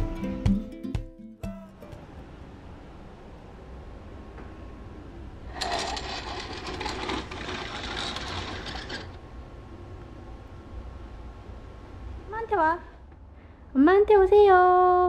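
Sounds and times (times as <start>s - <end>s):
mechanical rattle of rapid clicks: 5.5s - 9.2s.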